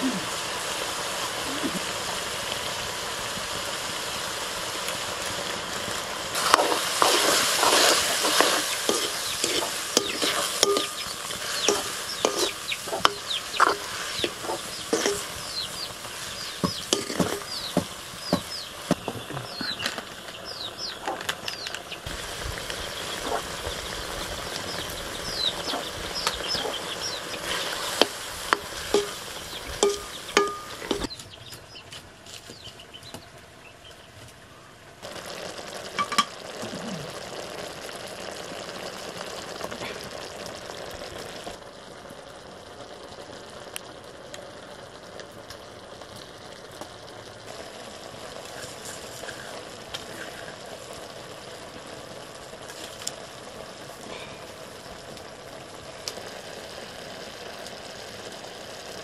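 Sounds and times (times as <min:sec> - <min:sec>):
curry sizzling and bubbling in a wok: 0:00.0 - 0:59.0
high falling bird chirps: 0:07.8 - 0:22.1, 0:22.7 - 0:34.7.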